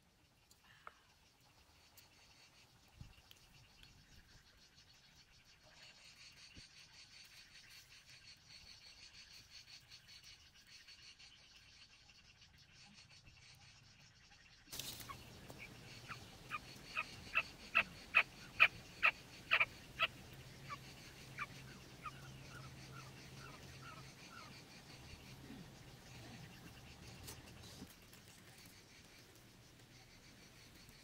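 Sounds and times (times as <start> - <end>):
quail calling: 14.8 - 25.3.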